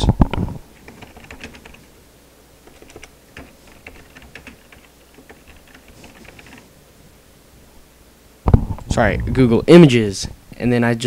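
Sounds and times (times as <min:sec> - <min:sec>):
typing on computer keyboard: 0:00.8 - 0:01.9, 0:02.6 - 0:06.7.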